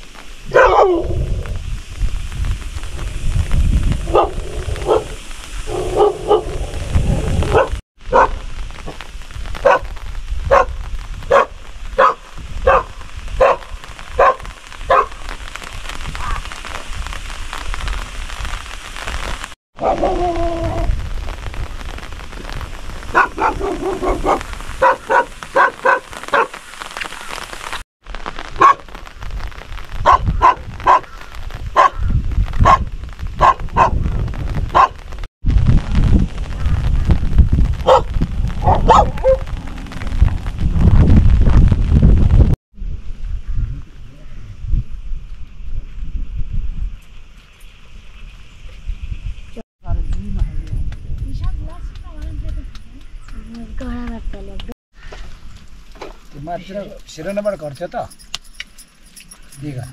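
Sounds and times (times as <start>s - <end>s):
rain hissing: 0.0s - 44.1s, 54.9s - 59.9s
dog barking: 0.5s - 1.2s, 4.1s - 6.8s, 7.4s - 8.4s, 9.6s - 9.9s, 10.5s - 15.2s, 19.8s - 20.4s, 23.1s - 26.6s, 28.6s - 28.8s, 30.0s - 31.1s, 31.8s - 32.0s, 32.6s - 34.0s, 34.7s - 35.0s, 37.8s - 39.4s.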